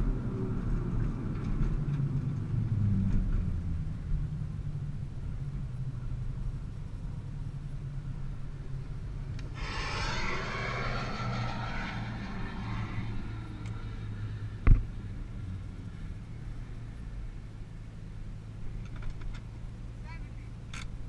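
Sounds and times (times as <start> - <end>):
jets passing overhead: 9.5 - 14.6.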